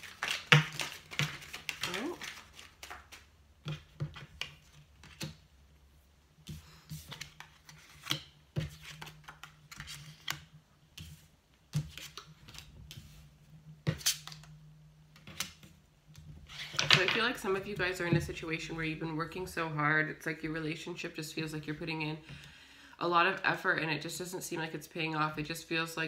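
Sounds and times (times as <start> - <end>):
cards being shuffled: 0.0 - 5.4, 6.5 - 13.2.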